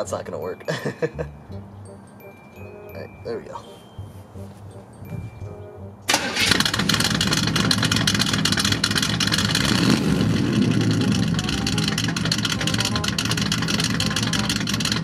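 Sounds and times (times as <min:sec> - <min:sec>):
car engine starting and revving: 0:06.0 - 0:15.0
exhaust blowing out: 0:06.0 - 0:15.0.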